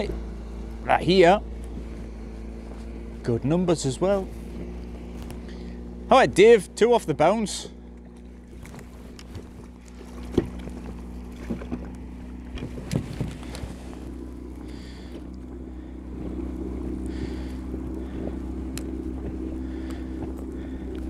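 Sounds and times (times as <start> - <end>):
outboard motor idling: 0.0 - 21.0
sharp knocks in boat: 8.0 - 15.5.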